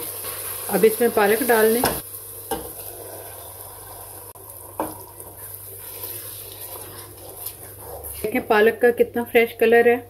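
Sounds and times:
curry simmering with hiss: 0.0s - 9.4s
wooden spoon stirring: 4.8s - 8.5s.

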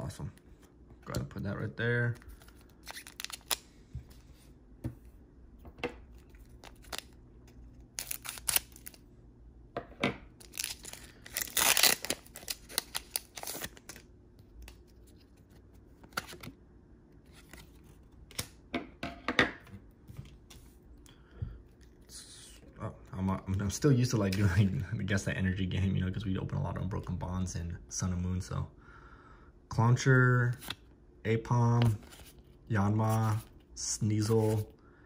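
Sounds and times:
cards clicking and rustling: 2.1s - 3.7s, 6.0s - 9.0s
foil wrapper crinkling: 7.9s - 9.0s, 10.4s - 14.0s.

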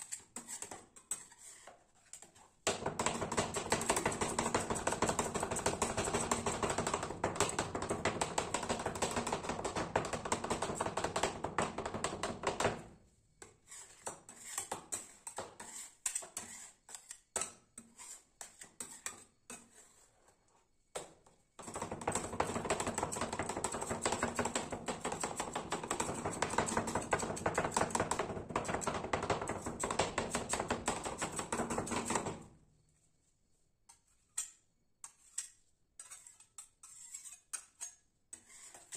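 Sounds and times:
spatula scraping: 0.0s - 2.6s, 13.4s - 20.7s, 33.9s - 38.9s.

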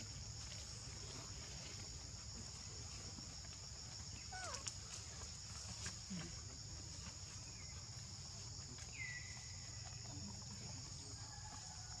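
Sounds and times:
insect chorus droning: 0.0s - 12.0s.

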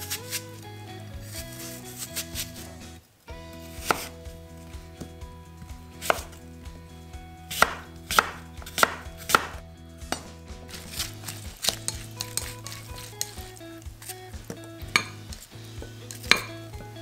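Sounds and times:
knife chopping on wooden board: 3.7s - 4.2s, 6.0s - 6.4s, 7.5s - 17.0s.

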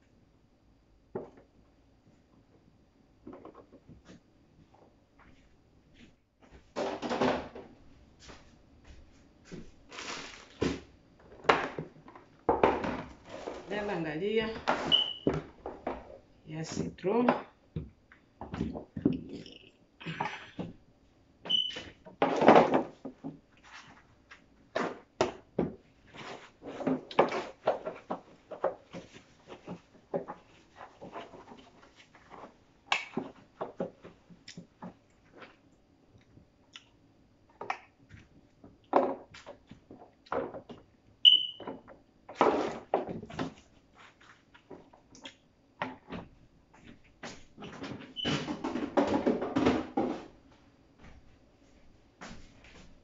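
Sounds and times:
plastic containers clattering: 6.7s - 7.7s, 9.9s - 13.7s, 21.6s - 23.4s, 24.7s - 35.5s, 45.9s - 50.4s
short high beeps: 41.3s - 41.6s.

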